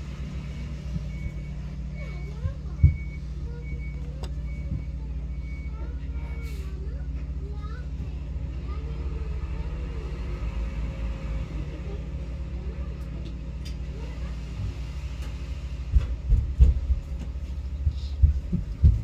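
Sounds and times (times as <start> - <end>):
diesel truck engine rumbling: 0.0 - 19.0
heavy thuds and knocks: 15.9 - 19.0.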